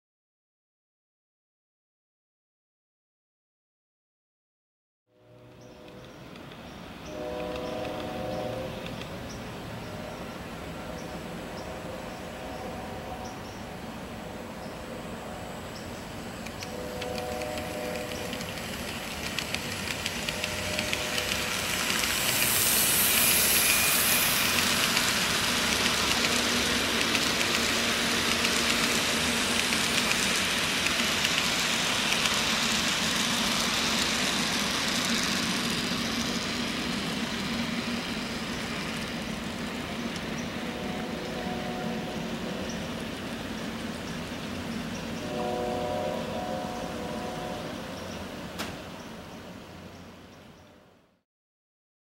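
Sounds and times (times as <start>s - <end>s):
model train rolling on track: 5.3s - 50.6s
clicking wheels: 16.4s - 23.8s, 24.5s - 36.4s.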